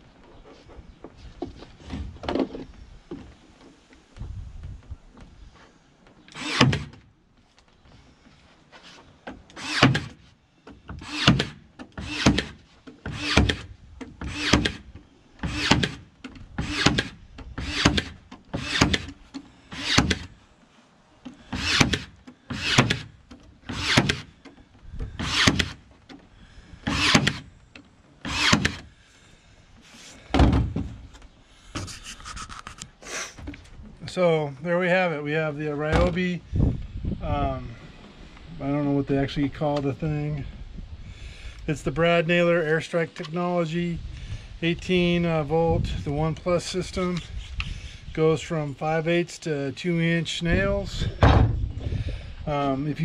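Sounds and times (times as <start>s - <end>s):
nail gun firing into wood: 6.3s - 7.0s, 9.6s - 10.2s, 11.0s - 14.8s, 15.4s - 16.0s, 16.6s - 19.2s, 19.8s - 20.3s, 21.6s - 23.1s, 23.7s - 24.3s, 25.2s - 25.8s, 26.9s - 27.5s, 28.3s - 28.9s.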